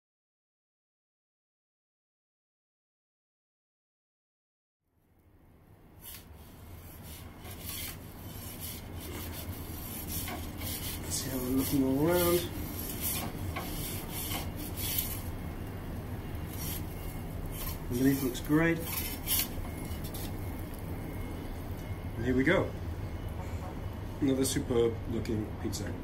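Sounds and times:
gas burner running: 0:05.9 - 0:25.9
pizza peel scraping: 0:06.0 - 0:15.5, 0:16.3 - 0:20.8.

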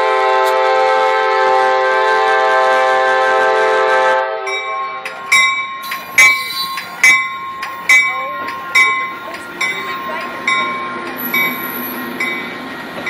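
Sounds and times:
train horn chord: 0:00.0 - 0:05.2
train wheels rumbling: 0:00.0 - 0:13.0
bell striking: 0:04.5 - 0:12.6.

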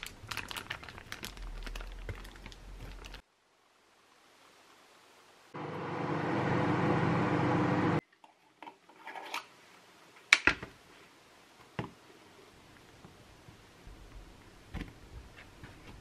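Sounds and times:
kitchen appliance humming: 0:05.6 - 0:08.0.

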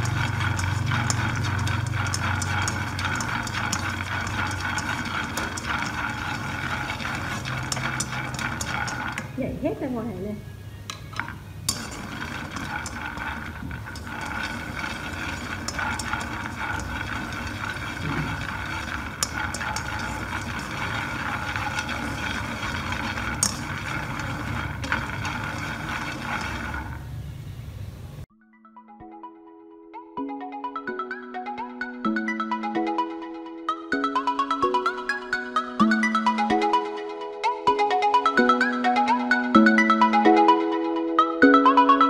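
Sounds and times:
gas flame hissing: 0:00.0 - 0:09.7, 0:11.3 - 0:28.2
nuts rattling in a wok: 0:00.0 - 0:09.7, 0:11.1 - 0:27.4.

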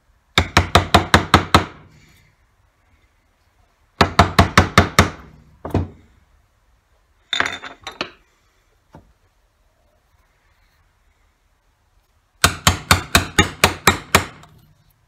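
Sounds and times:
hammer striking chisel: 0:00.4 - 0:01.8, 0:12.4 - 0:14.6.

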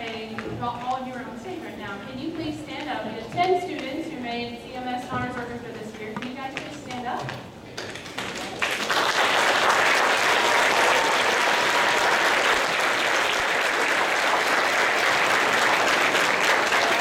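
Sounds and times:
audience applauding: 0:07.8 - 0:17.0.

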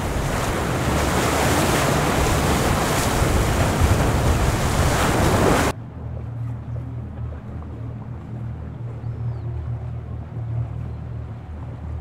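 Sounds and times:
choppy seawater rushing: 0:00.0 - 0:05.8
wind buffeting microphone: 0:00.0 - 0:07.9
low steady hum: 0:05.6 - 0:12.0.

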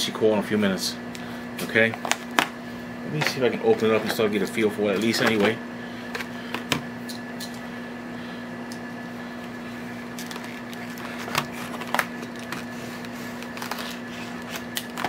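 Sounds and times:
plastic packaging crackling: 0:10.1 - 0:15.0.

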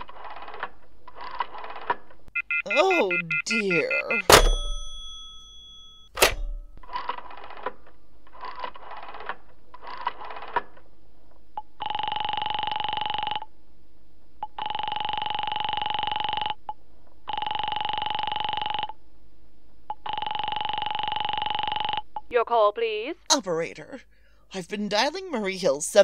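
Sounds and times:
telephone bell ringing: 0:02.4 - 0:06.4, 0:14.6 - 0:16.6, 0:17.3 - 0:18.9, 0:20.0 - 0:22.0.

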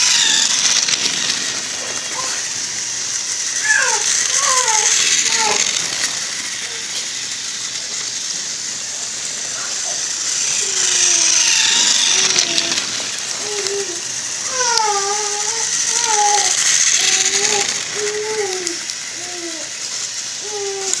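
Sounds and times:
toy train motor whirring: 0:00.0 - 0:21.0
voice making wavering sounds: 0:03.6 - 0:05.9.

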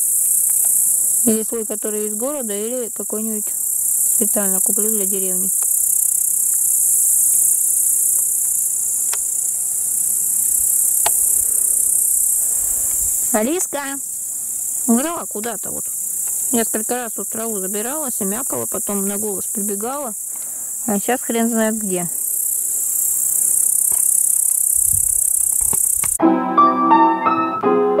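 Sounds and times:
insects stridulating: 0:00.0 - 0:26.2
piano music: 0:26.2 - 0:28.0.

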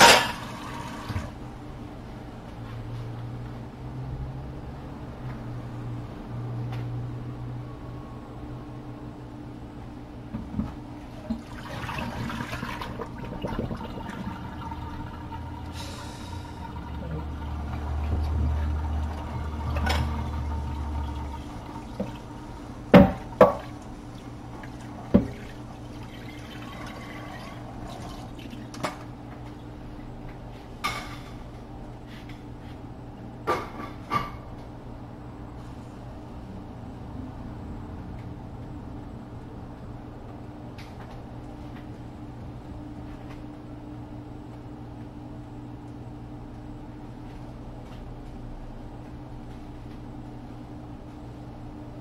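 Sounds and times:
water running: 0:00.0 - 0:01.4, 0:11.2 - 0:29.7
steady low hum: 0:00.0 - 0:52.0.

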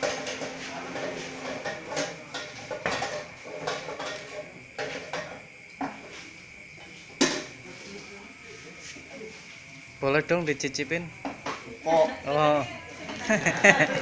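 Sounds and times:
metal pot clanking and knocking: 0:00.0 - 0:06.0, 0:07.2 - 0:07.5.

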